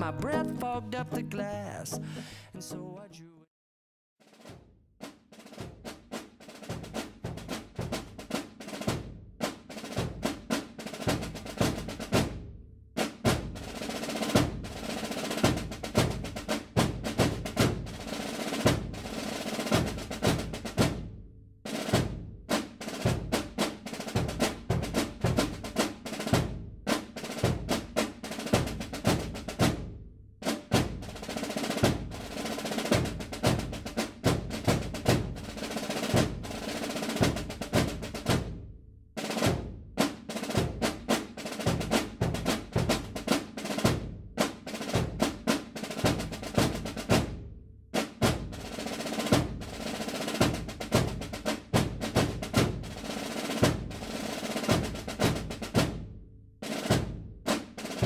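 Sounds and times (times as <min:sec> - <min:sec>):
snare and bass drums marching: 0:04.2 - 0:58.0.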